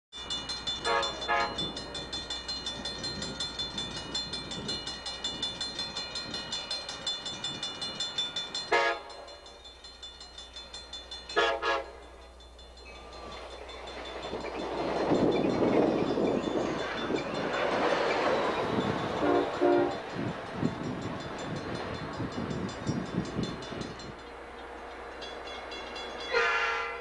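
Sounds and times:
grade crossing bell ringing: 0.1s - 27.0s
train horn blasts: 0.8s - 1.7s, 8.7s - 9.4s, 11.4s - 12.0s, 19.2s - 20.1s, 26.3s - 27.0s.

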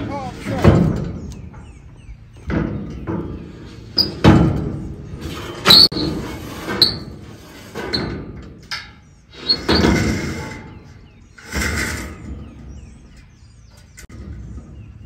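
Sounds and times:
steel bar clanking on metal: 0.4s - 15.0s
steel scraping on steel: 5.0s - 13.2s.

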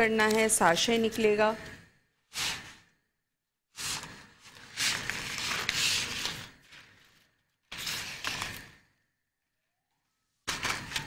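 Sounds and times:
packaging crinkling and rustling: 3.9s - 8.8s.

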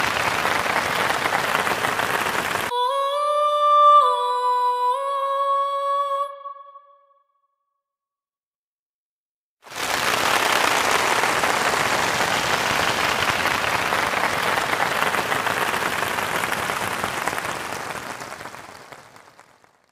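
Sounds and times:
crowd applauding: 0.0s - 2.7s, 9.7s - 19.9s.

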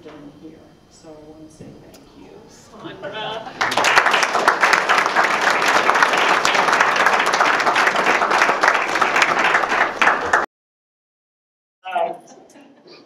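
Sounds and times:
audience applauding: 3.5s - 10.5s.

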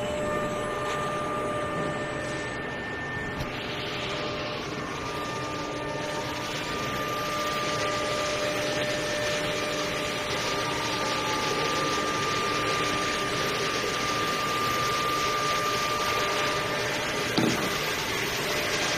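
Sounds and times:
router spindle whining: 0.0s - 18.9s.

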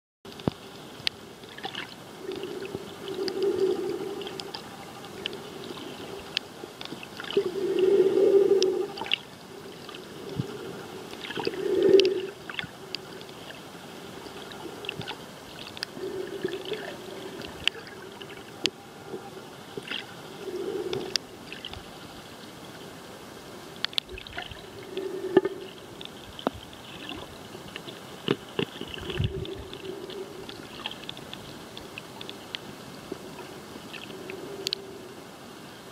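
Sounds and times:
sharp underwater clicks: 0.3s - 7.8s, 14.3s - 18.8s, 19.8s - 21.8s, 23.8s - 32.7s, 33.9s - 34.9s
underwater hiss: 1.6s - 22.1s, 24.2s - 26.0s, 28.9s - 31.7s, 32.8s - 35.5s
low burbling swell: 2.0s - 13.0s, 15.8s - 21.7s.

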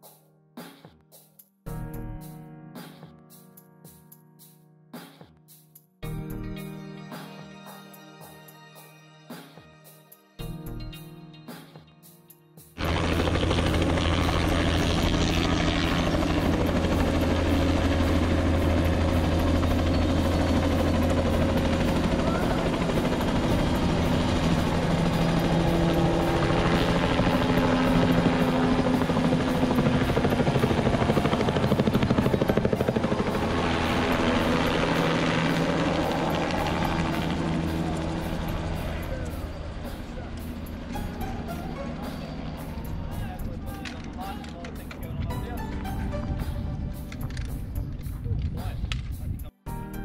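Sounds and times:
helicopter rotor chopping: 12.8s - 49.3s.

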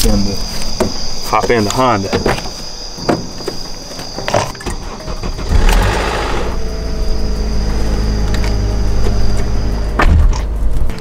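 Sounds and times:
car starter cranking: 4.5s - 6.6s
car engine idling: 4.7s - 9.8s.

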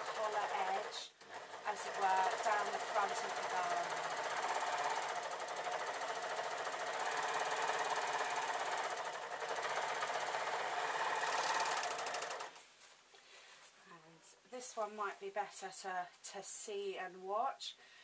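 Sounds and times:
overlocker stitching: 0.0s - 12.6s.

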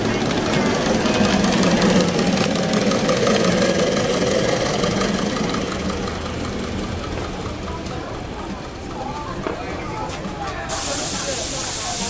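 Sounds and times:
model steam locomotive running: 0.0s - 12.0s.

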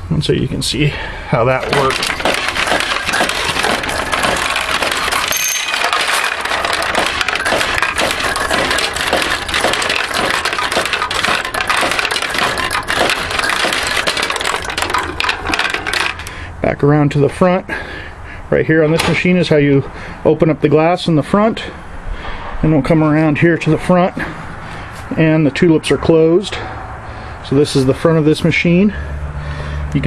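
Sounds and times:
steel balls clattering: 1.6s - 16.4s
high ring: 5.3s - 5.9s.

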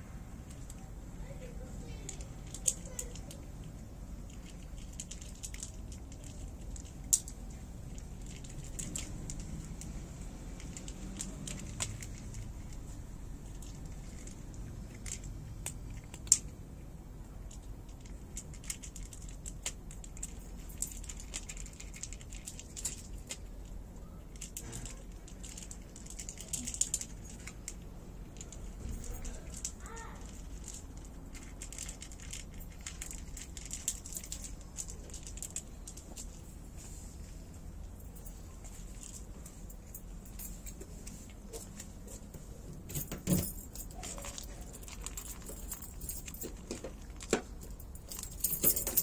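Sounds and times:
low background hum: 0.0s - 49.0s
small clicks and crackles: 0.4s - 16.6s, 17.4s - 37.4s, 43.0s - 49.0s.

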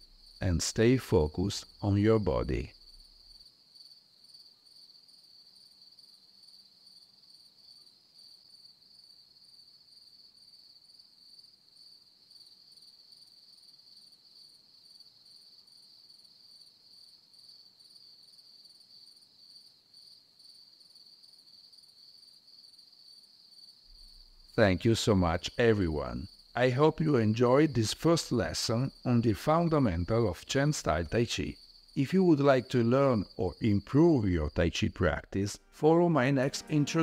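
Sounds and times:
low background hiss: 0.0s - 8.9s, 23.2s - 37.0s.

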